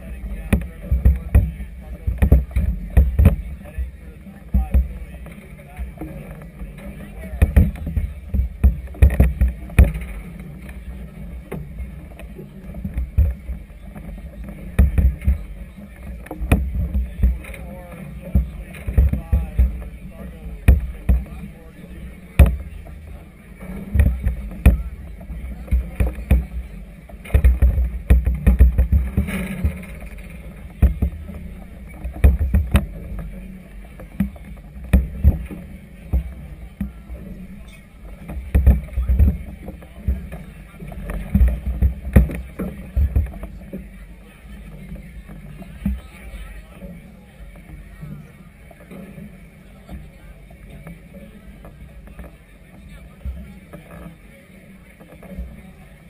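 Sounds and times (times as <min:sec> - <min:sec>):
waves slapping a hull: 0:00.0 - 0:55.9
wind: 0:00.0 - 0:56.0
water thumping against float: 0:00.4 - 0:06.1, 0:07.3 - 0:10.8, 0:11.5 - 0:43.8.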